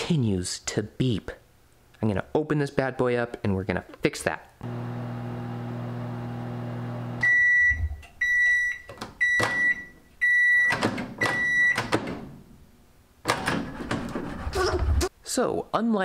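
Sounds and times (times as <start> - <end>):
microwave humming: 4.6 - 8.0
door handle clicks and knocks: 10.7 - 12.3.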